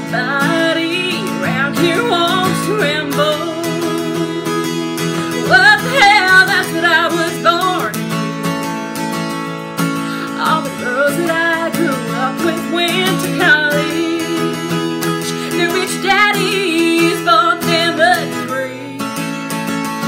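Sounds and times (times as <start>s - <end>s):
acoustic guitar strumming: 0.0s - 20.0s
woman singing country song: 0.0s - 20.0s.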